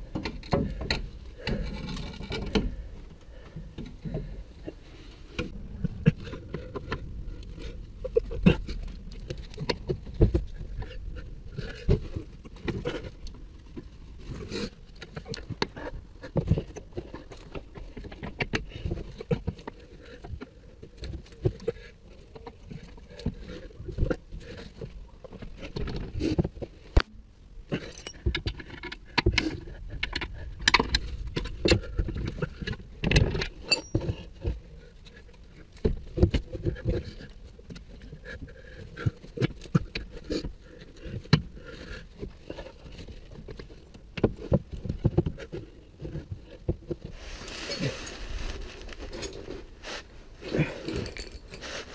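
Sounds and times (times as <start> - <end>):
metallic clinks of spanners: 27.9 - 28.2, 33.7 - 34.0.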